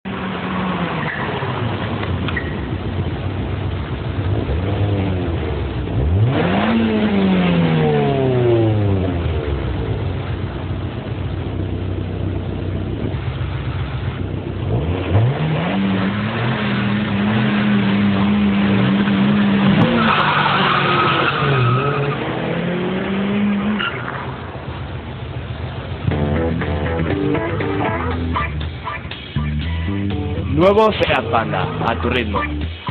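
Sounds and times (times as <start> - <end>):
tyre squeal: 2.3 - 2.7, 18.2 - 22.3, 23.5 - 24.3
small car engine revving: 4.2 - 10.0, 14.6 - 24.4.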